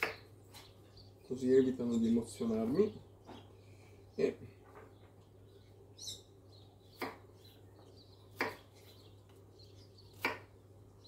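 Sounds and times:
knife chopping on wooden board: 8.4 - 8.7, 10.2 - 10.5.

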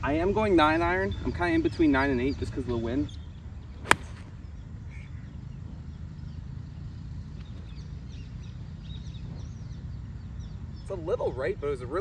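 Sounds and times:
golf club striking ball: 3.8 - 4.4.

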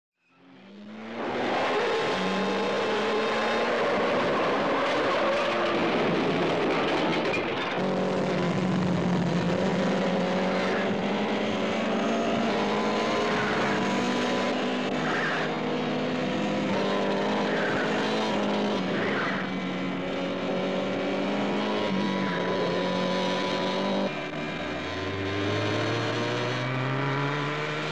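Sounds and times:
motorcycle engines droning: 0.3 - 27.9.

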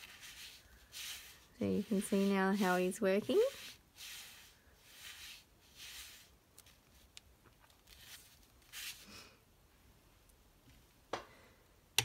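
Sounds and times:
card stock rustling and sliding: 0.0 - 7.1, 7.8 - 9.0
paper panels swishing: 0.0 - 7.1, 7.8 - 9.0.

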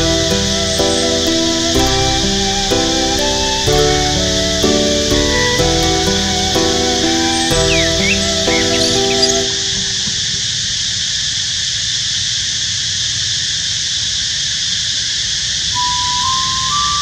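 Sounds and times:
background music: 0.0 - 10.0
high hiss: 0.0 - 11.1.

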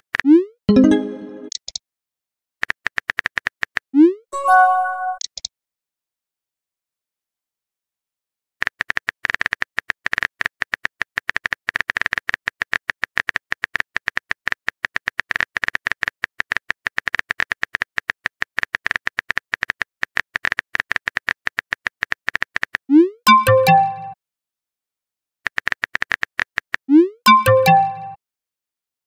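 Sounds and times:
keyboard typing clicks: 25.5 - 28.2.

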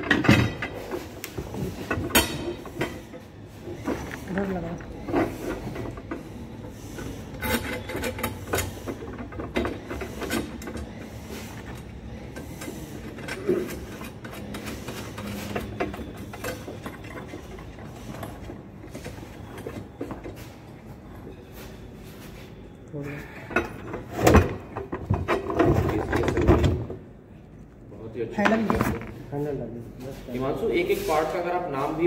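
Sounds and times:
metal clicks and scraping: 0.0 - 21.3.

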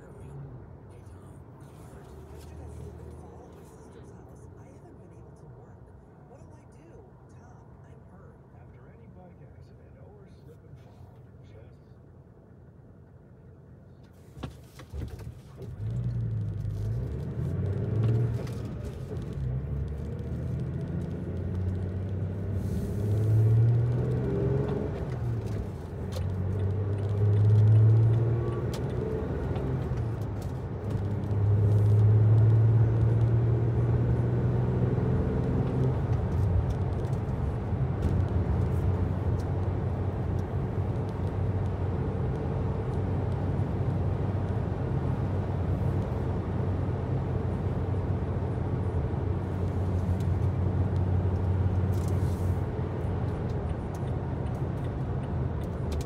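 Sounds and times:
vehicle engine revving: 15.6 - 56.0.

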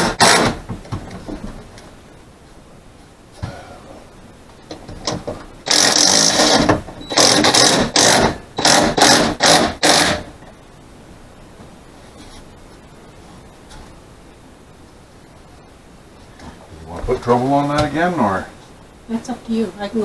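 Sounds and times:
cordless drill driving a screw: 0.0 - 0.6, 5.7 - 10.2.

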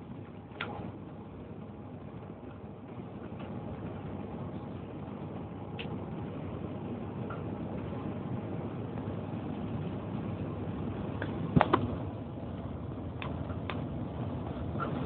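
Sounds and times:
vehicle road and engine noise: 0.0 - 15.0
sharp knocks: 11.6 - 11.9.

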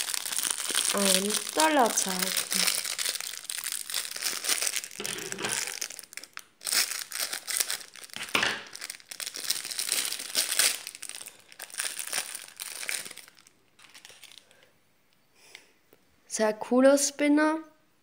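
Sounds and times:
plastic bag crinkling: 0.0 - 14.7.

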